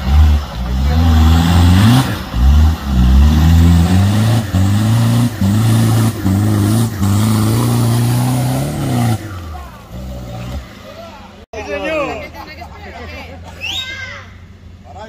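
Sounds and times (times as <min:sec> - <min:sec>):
engine revving hard: 0:00.0 - 0:10.7.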